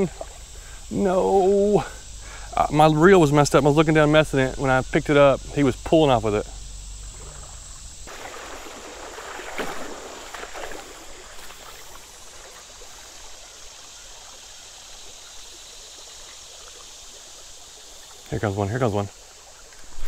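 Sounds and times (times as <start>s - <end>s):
high insect drone: 0.0s - 20.0s
creek water rushing over gravel: 8.1s - 20.0s.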